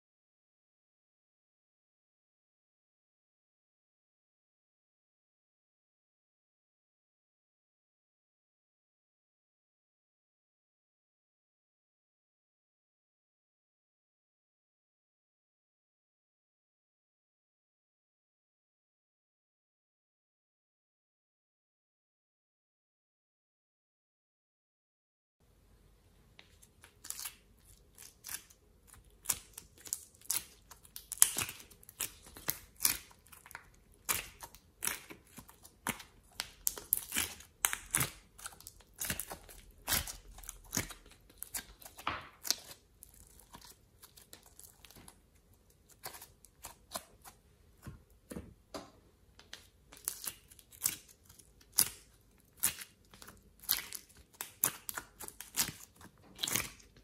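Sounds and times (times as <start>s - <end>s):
slime crackles and clicks: 26.8s - 45.2s, 49.5s - 57.0s.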